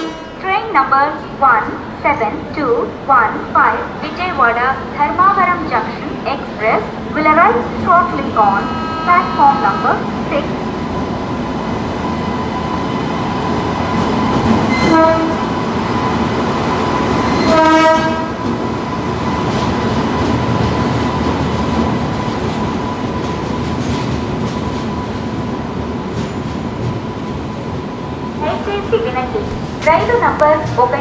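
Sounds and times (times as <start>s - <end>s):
train wheels rumbling on rails: 5.2s - 31.0s
train horn blasts: 8.4s - 10.1s, 14.7s - 15.5s, 17.4s - 18.4s.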